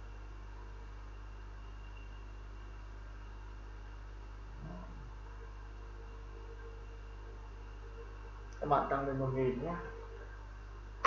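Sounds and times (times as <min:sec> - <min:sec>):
electrical hum and hiss: 0:00.0 - 0:11.0.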